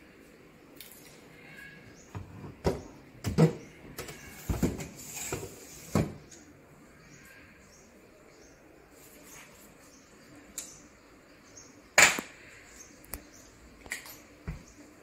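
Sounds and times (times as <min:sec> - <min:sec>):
metal tray scraping: 0:03.4 - 0:06.2.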